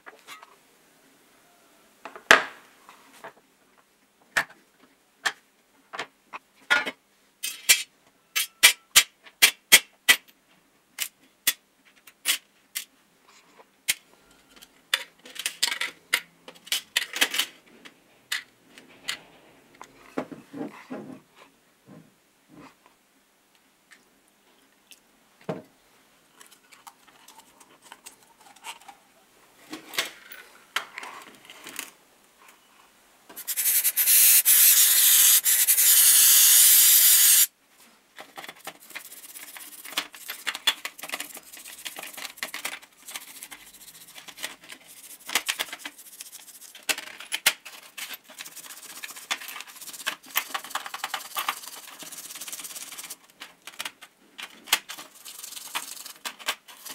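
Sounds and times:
loud hissing spray: 33.4s - 37.5s
toothbrush scrubbing metal parts: 33.4s - 37.5s, 38.6s - 47.0s, 47.9s - 53.2s, 54.9s - 56.9s.

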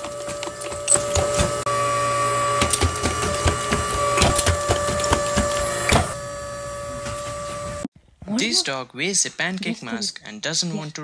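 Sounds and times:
machine hum and whine: 0.0s - 7.9s.

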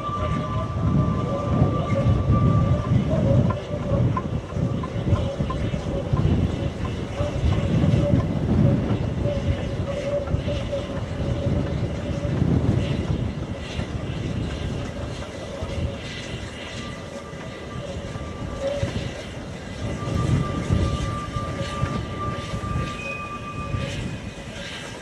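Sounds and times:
high wheel squeal: 0.0s - 25.0s
steam locomotive rumbling: 0.0s - 25.0s
wind gusts on microphone: 0.0s - 25.0s.

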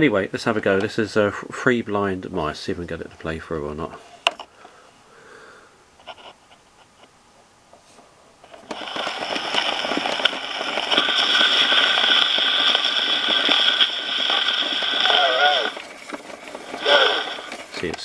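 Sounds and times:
scratchy record surface noise: 6.0s - 7.2s, 7.8s - 18.0s
gramophone needle dropping on record: 8.4s - 18.0s.

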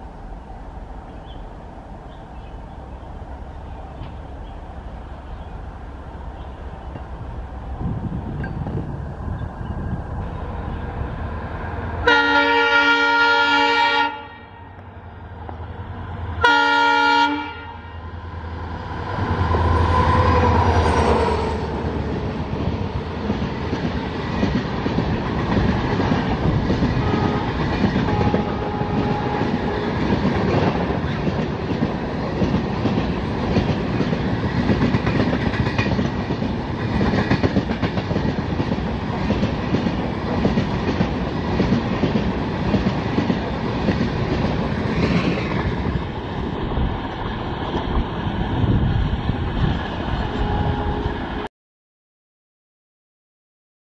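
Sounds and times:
diesel locomotive engine rumbling: 0.0s - 51.5s
locomotive horn blasts: 12.0s - 14.8s, 16.4s - 18.1s, 27.0s - 30.0s, 50.2s - 51.4s
wheels clacking over rail joints: 22.1s - 48.5s.

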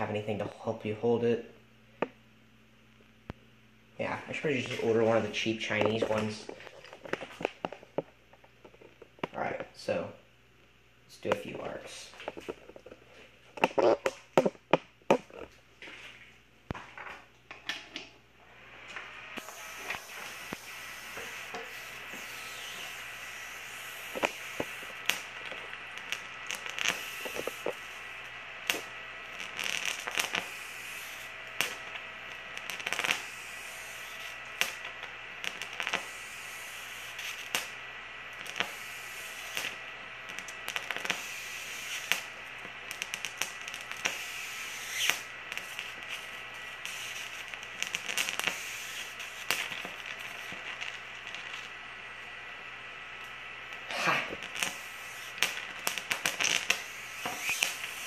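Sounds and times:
electric arcs snapping and crackling: 4.0s - 10.0s, 11.1s - 15.6s, 18.8s - 58.0s
high-pitched electronic whine: 11.1s - 15.6s, 18.4s - 58.0s.

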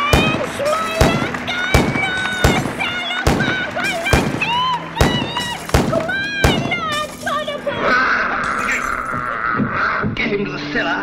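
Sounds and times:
heavy percussive hits: 0.0s - 7.7s
wavering voice-like tones: 7.6s - 10.1s.

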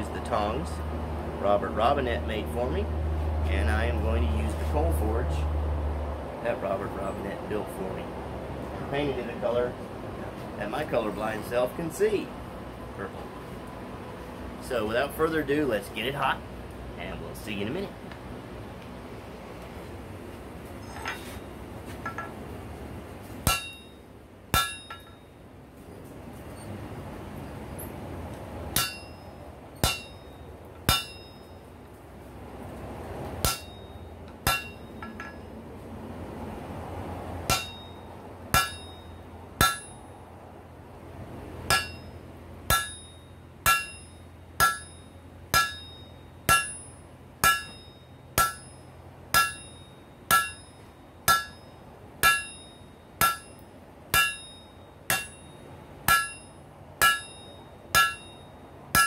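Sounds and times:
steady low hum: 5.0s - 59.0s
hammer striking metal on anvil: 23.4s - 25.3s, 28.8s - 31.6s, 33.4s - 35.5s, 37.5s - 40.1s, 41.7s - 59.0s.

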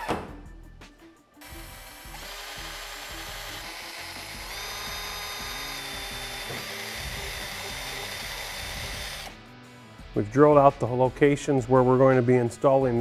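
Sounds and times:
cordless drill whining: 1.4s - 9.4s.

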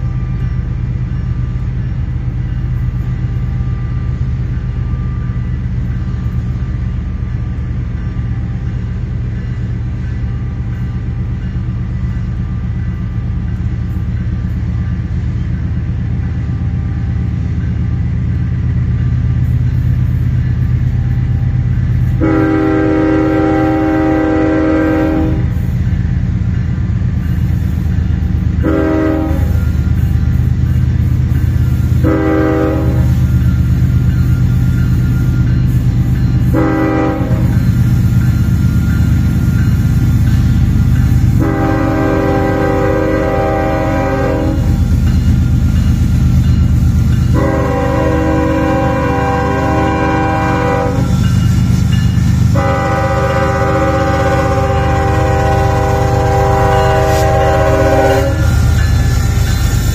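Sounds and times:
locomotive engine drone: 0.0s - 59.9s
train air horn blasts: 22.0s - 25.7s, 28.6s - 29.8s, 32.0s - 33.4s, 36.4s - 37.7s, 41.3s - 44.9s, 47.3s - 51.6s, 52.5s - 59.3s.

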